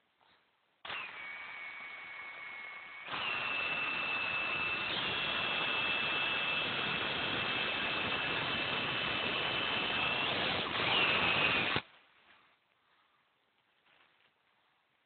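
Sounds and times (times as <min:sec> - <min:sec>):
electric drill whining: 0:00.8 - 0:11.8
drill grinding into steel: 0:00.9 - 0:11.8.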